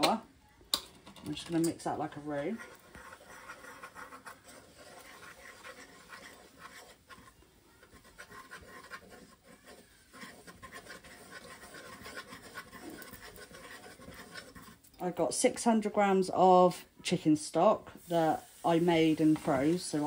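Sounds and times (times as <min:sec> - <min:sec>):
utensil scraping pan: 0:01.3 - 0:15.0, 0:18.0 - 0:20.0.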